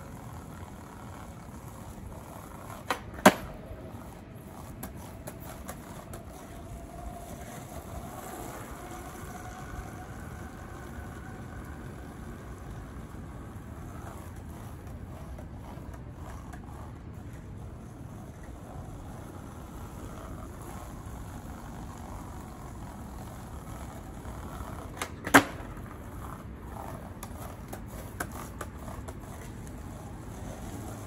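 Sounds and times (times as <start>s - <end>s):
low outdoor hum: 0.0s - 31.0s
skateboard clacking down: 0.1s - 17.3s, 19.2s - 31.0s
skateboard tail snapping on pavement: 0.4s - 6.6s, 23.2s - 31.0s.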